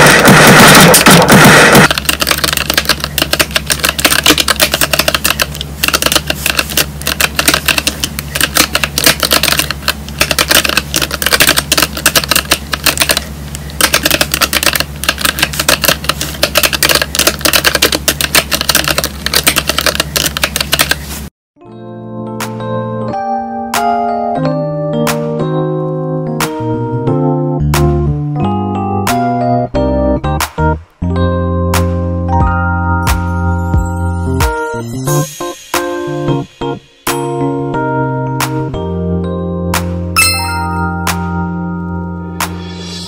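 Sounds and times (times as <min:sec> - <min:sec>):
loud rushing noise: 0:00.0 - 0:01.9
mechanical keyboard typing: 0:00.0 - 0:21.1.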